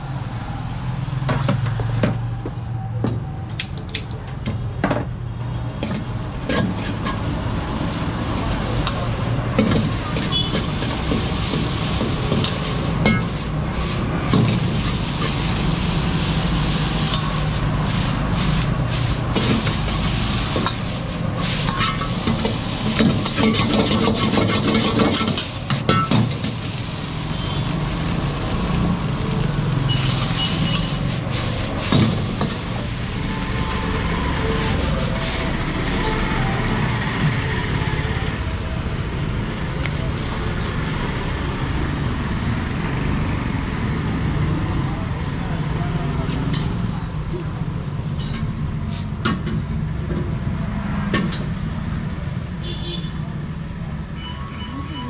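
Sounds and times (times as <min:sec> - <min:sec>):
noodles sizzling in a wok: 0:05.8 - 0:43.1
metal ladle scraping a wok: 0:05.9 - 0:28.1, 0:29.7 - 0:36.3, 0:48.0 - 0:49.2
ladle clanking against wok: 0:08.7 - 0:15.5, 0:16.2 - 0:27.0.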